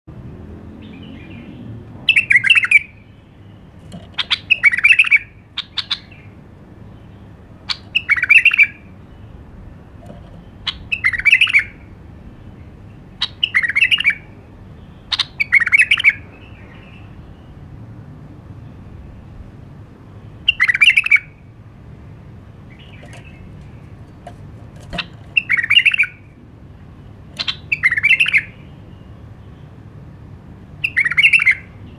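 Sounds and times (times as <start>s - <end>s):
bulbul singing warbled phrases: 1.0s - 11.8s, 20.4s - 21.4s, 22.7s - 29.8s, 30.8s - 31.9s.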